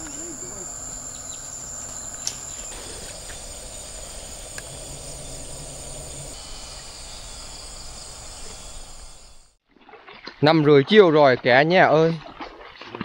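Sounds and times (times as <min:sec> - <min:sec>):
insects droning: 0:00.0 - 0:09.6.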